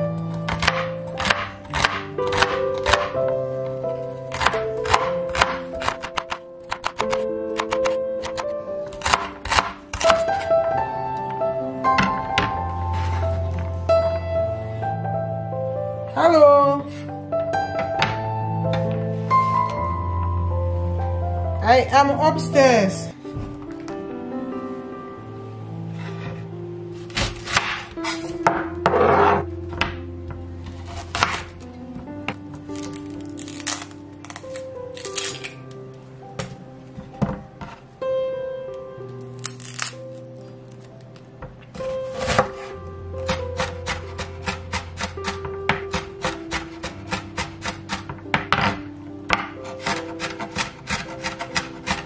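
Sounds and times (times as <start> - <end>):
soft background music: 0.0 - 52.0
knife slicing onion on board: 0.4 - 3.2, 4.3 - 10.5, 27.1 - 29.4, 30.8 - 31.6, 41.8 - 52.0
knife blade scraping board: 27.1 - 29.5, 49.6 - 52.0.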